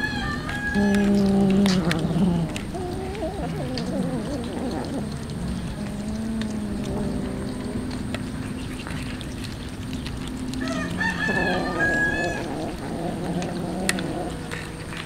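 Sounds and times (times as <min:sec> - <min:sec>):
rooster crowing: 0:00.0 - 0:01.1, 0:10.6 - 0:12.6
cats chewing wet food: 0:00.0 - 0:15.0
low steady hum: 0:00.0 - 0:15.0.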